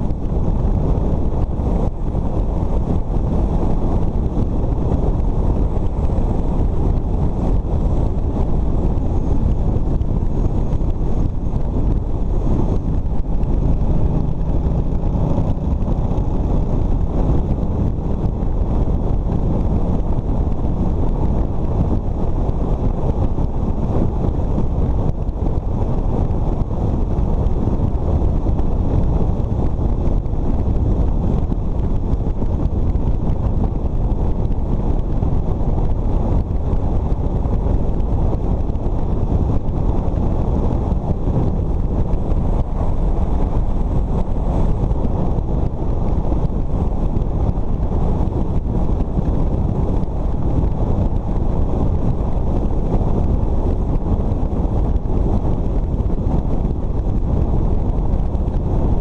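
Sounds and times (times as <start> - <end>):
road noise: 0.0 - 59.0
wind buffeting microphone: 0.0 - 59.0
motorcycle engine: 0.2 - 22.8.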